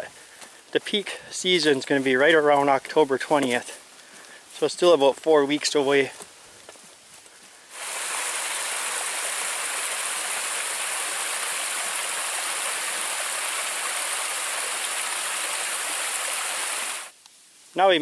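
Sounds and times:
small waterfall rushing: 7.7s - 17.2s.

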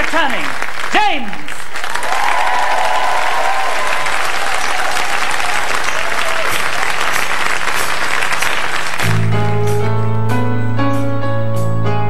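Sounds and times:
studio audience applauding: 0.0s - 9.3s
whoops and cheers: 1.9s - 7.1s.

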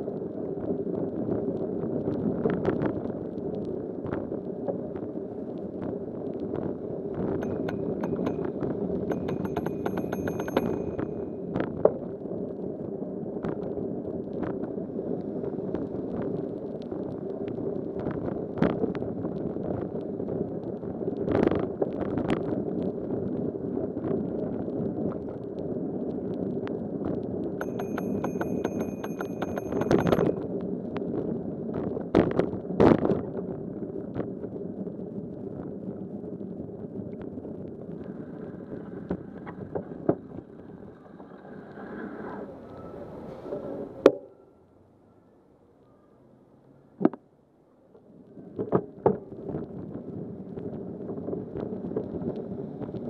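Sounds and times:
bicycle road and wind noise: 0.0s - 44.6s, 48.0s - 53.0s
bike knocking and rattling: 7.3s - 11.4s, 27.6s - 30.4s
bell-like ringing tone: 7.4s - 11.6s, 27.6s - 30.5s.

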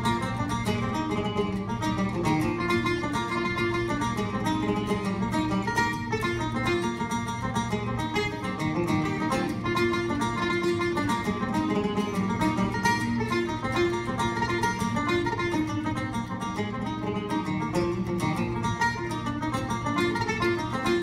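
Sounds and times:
acoustic guitar strumming chords: 0.0s - 21.0s
banjo picking fast folk tune: 0.0s - 21.0s.

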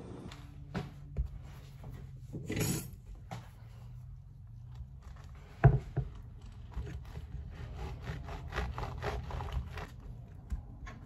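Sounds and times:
knife sawing through bread: 6.9s - 10.0s.

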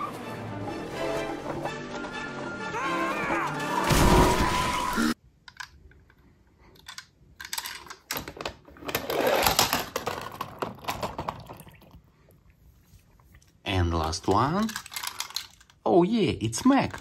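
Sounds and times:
animated film music: 0.0s - 5.2s
plastic toy clicks and rattles: 6.7s - 11.4s, 14.0s - 15.8s.

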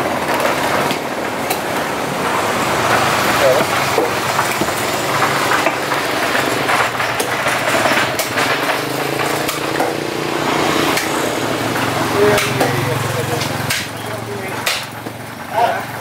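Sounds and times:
motor engine running: 0.0s - 16.0s.

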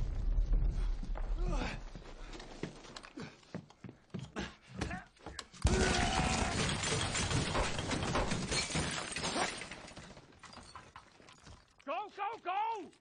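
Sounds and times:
clatter of breaking glass: 5.8s - 11.8s.

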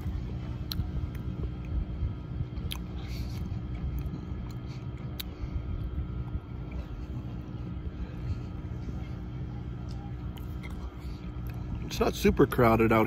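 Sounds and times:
man chewing food: 0.0s - 12.3s
steady low rumble: 0.0s - 13.0s.

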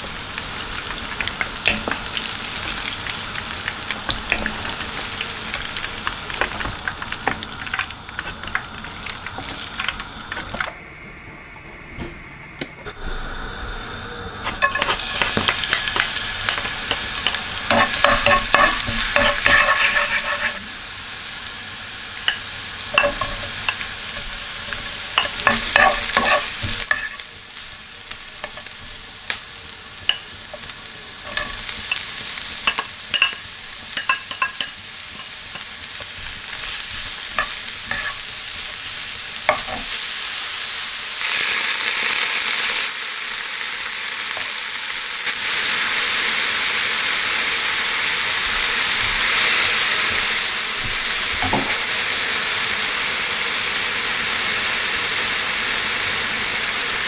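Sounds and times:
vegetables sizzling in oil: 0.0s - 57.0s
wooden spatula tapping pan: 14.6s - 20.5s.

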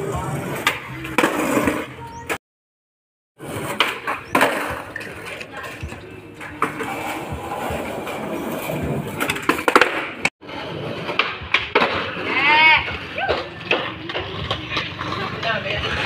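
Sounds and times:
skateboard wheels rolling on concrete: 0.0s - 2.4s, 3.4s - 16.0s
skateboard clacking on concrete: 3.6s - 10.3s, 11.0s - 16.0s.

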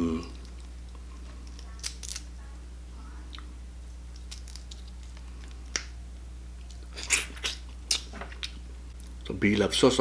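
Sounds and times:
crab shell cracking by hand: 1.4s - 2.3s, 4.1s - 6.0s.

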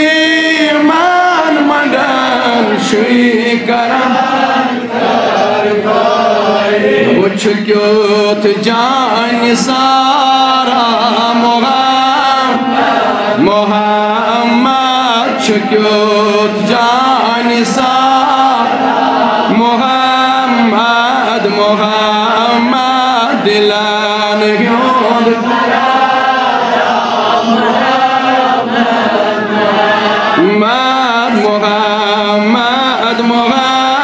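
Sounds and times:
man singing devotional chant: 0.0s - 34.0s.

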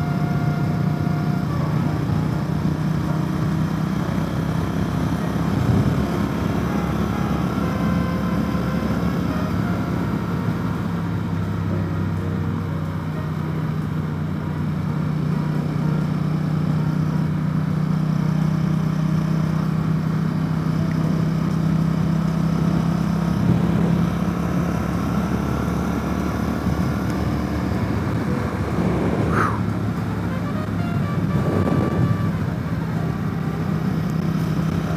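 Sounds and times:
motorcycle engine droning: 0.0s - 34.9s
wind noise: 5.3s - 6.8s, 23.3s - 34.9s.

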